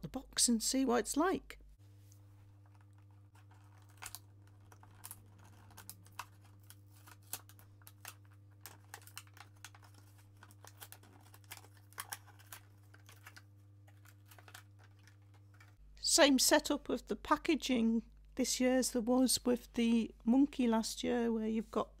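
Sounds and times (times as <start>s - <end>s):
plastic blister pack crinkling: 2.6s - 15.8s.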